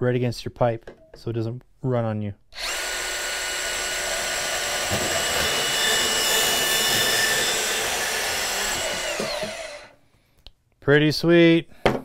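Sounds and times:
band saw cutting plastic pipe: 2.6 - 10.0.

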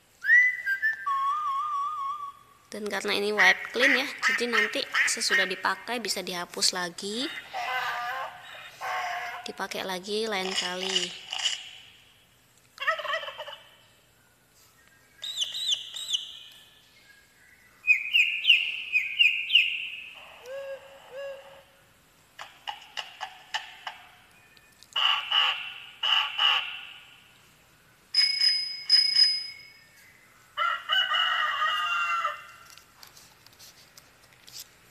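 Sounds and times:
recorded animal and bird calls: 7.2 - 9.6, 10.4 - 28.1, 29.7 - 32.7
ringing tone: 28.2 - 29.9.

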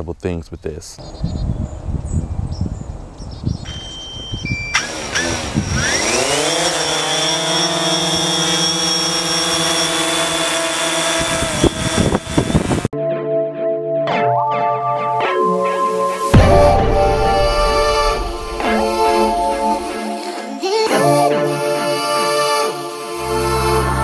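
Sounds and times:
drone propellers buzzing: 3.5 - 12.9, 15.8 - 24.0.

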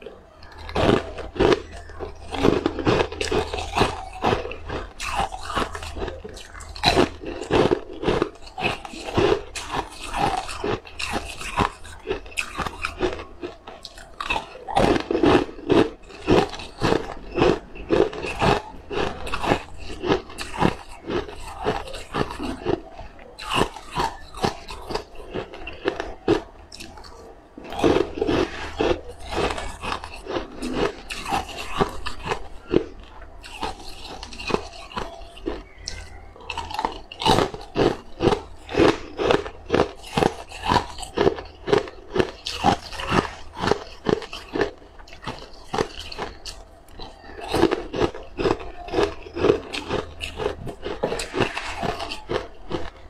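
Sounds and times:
crunching cookies: 0.0 - 53.0.

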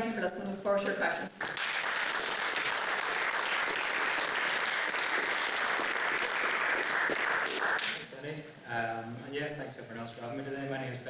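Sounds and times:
audience applauding: 1.4 - 8.1.

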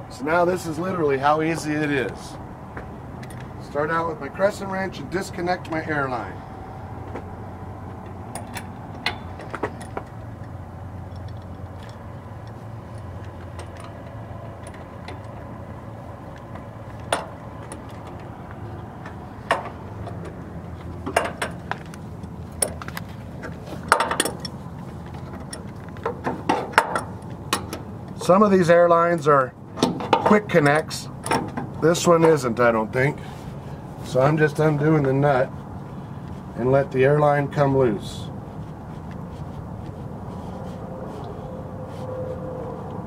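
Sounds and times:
steady low rumble: 0.0 - 29.8
wrench clinking on metal fittings: 23.9 - 25.8.

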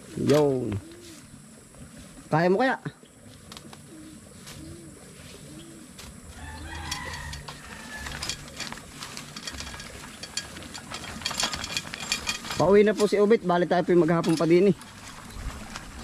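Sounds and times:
low bird call: 3.8 - 8.2.

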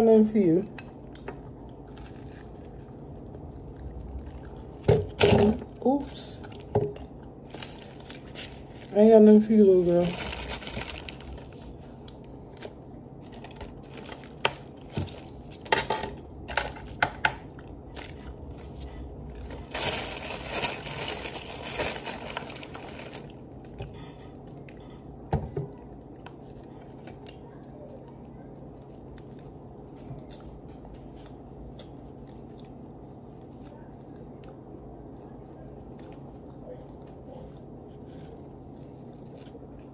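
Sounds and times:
chewing bread: 0.8 - 39.9
crinkling: 1.1 - 24.9, 25.9 - 39.9.

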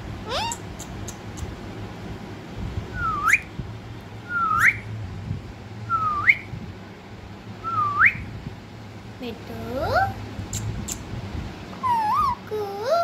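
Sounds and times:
parakeet whistles: 0.3 - 1.2, 3.0 - 3.5, 4.3 - 4.9, 5.9 - 6.5, 7.6 - 8.3, 11.8 - 12.4.

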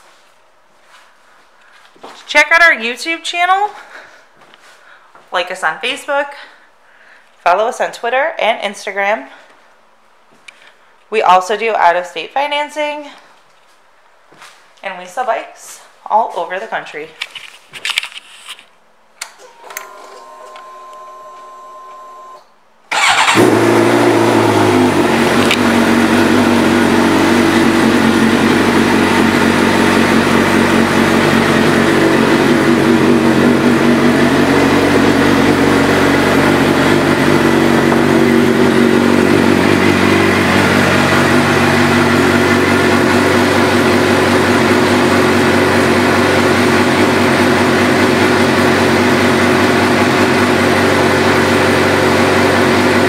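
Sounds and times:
motorcycle engine idling: 23.0 - 53.0.

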